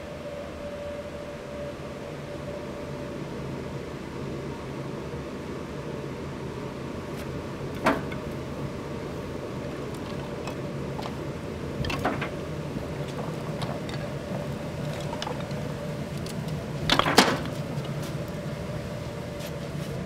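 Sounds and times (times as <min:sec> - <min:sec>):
steady low hum: 0:00.0 - 0:20.0
firewood knocking and clattering: 0:07.8 - 0:08.3, 0:11.8 - 0:18.0.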